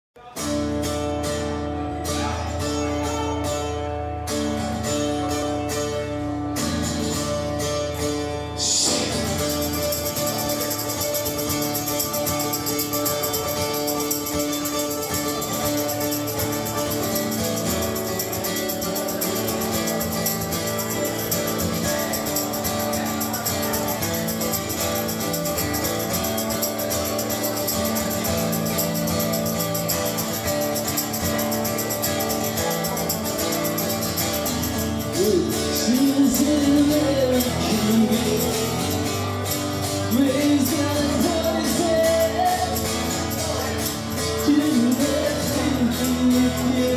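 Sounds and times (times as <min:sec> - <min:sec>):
man singing: 0:08.3 - 0:26.0, 0:34.7 - 0:46.9.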